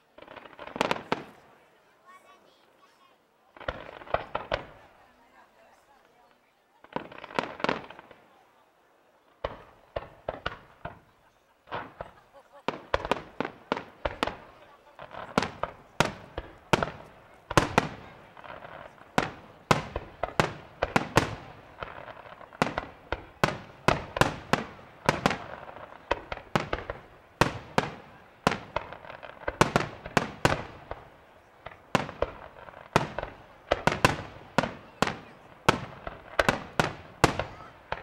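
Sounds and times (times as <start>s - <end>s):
fireworks bangs with echo: 0.0s - 1.6s, 3.5s - 5.0s, 6.8s - 8.4s, 9.3s - 38.0s.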